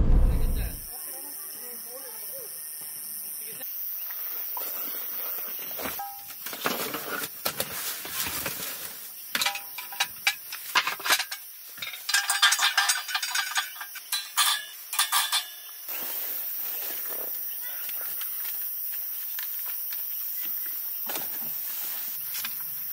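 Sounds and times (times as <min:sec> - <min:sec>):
metal grill grate clinking: 0:09.4 - 0:15.6.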